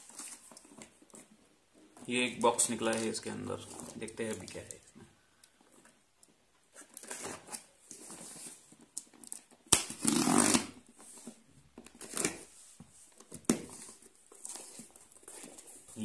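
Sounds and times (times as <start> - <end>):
tape and cardboard tearing: 6.8 - 10.9, 11.8 - 12.5
pen slitting packing tape: 9.3 - 10.8.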